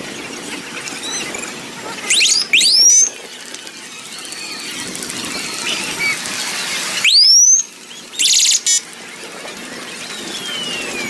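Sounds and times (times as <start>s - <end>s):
crowd and street noise: 0.0s - 7.6s
police siren whoop: 2.1s - 3.1s, 7.0s - 7.6s, 10.3s - 11.0s.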